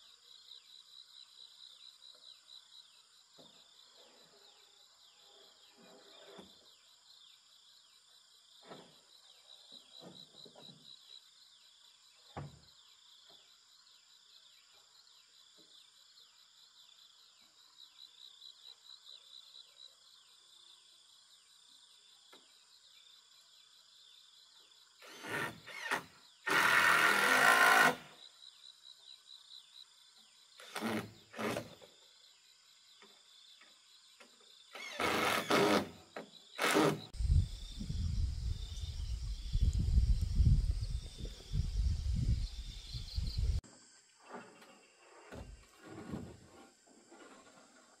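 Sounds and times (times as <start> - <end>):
insects chirring: 0.0 - 46.8
low gusty rumble: 37.2 - 43.6
wood scraping: 44.2 - 48.0.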